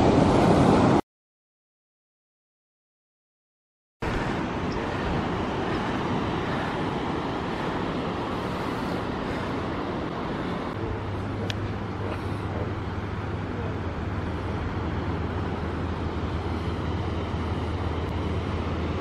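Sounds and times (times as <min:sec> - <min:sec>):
distant surf: 0:00.0 - 0:01.0, 0:04.0 - 0:19.0
low steady hum: 0:04.1 - 0:19.0.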